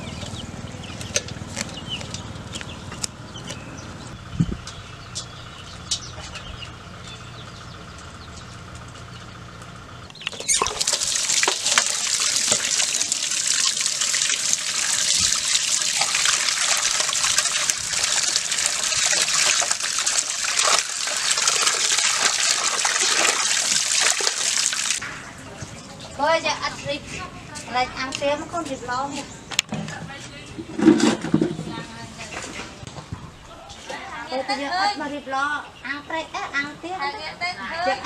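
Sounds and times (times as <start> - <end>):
tap water gushing into metal basin: 10.5 - 25.0.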